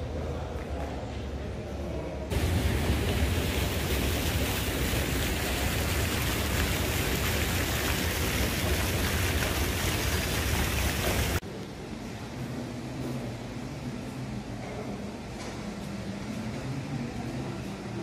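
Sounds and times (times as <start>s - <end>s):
fountain water splashing: 2.3s - 11.4s.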